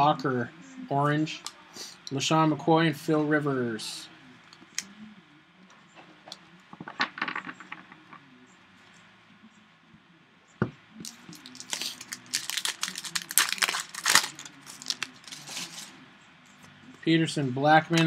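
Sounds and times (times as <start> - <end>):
foil wrapper crinkling and tearing: 11.0 - 15.9.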